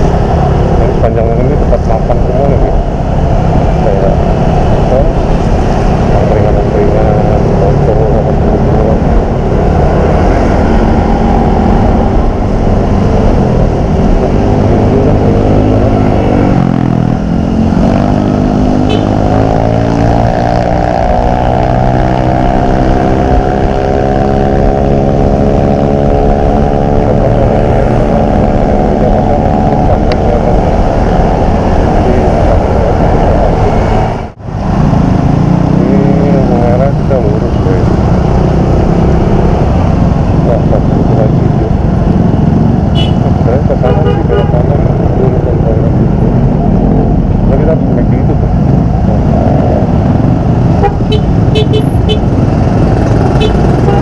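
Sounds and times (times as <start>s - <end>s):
wind and tyre noise: 0.0s - 54.0s
scooter engine hum: 27.0s - 54.0s.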